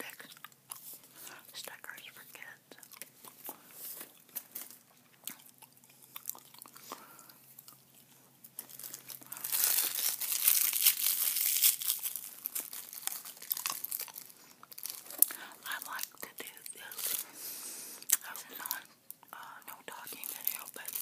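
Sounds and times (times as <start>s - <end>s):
gum chewing clicks: 0.0s - 1.0s, 2.8s - 8.1s, 18.0s - 19.5s
paper envelope crinkling: 8.4s - 17.3s, 19.9s - 21.0s.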